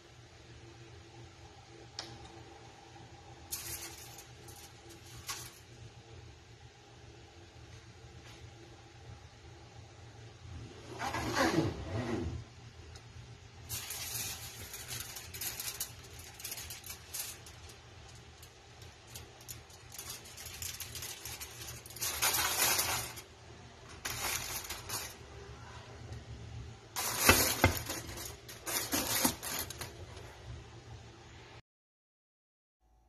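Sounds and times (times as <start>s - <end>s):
aluminium foil crinkling: 3.4s - 5.9s, 13.6s - 25.3s, 27.0s - 30.2s.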